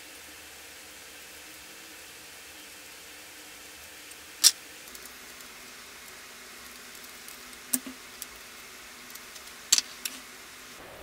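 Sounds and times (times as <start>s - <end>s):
faint hiss: 0.0s - 11.0s
metal nuts and washers clinking: 9.4s - 10.2s.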